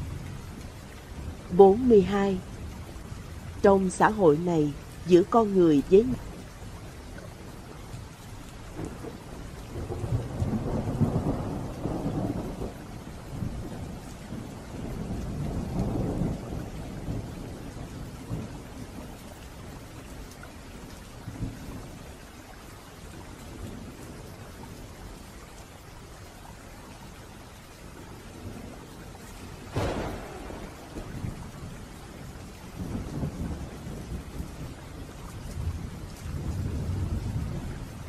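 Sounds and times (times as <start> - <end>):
steady rain: 0.0 - 38.0
rolling thunder: 8.7 - 19.2, 29.4 - 38.0.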